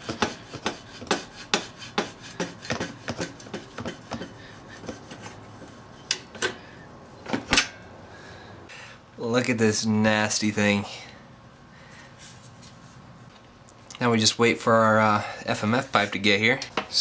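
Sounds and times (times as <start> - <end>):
exhaust pipe scraping metal frame: 0.0 - 6.8.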